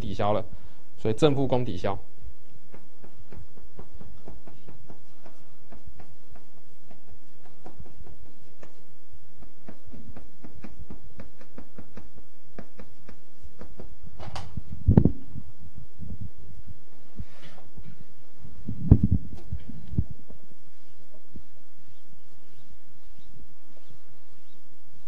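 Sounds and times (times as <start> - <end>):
chalk tapping on blackboard: 2.7 - 14.0.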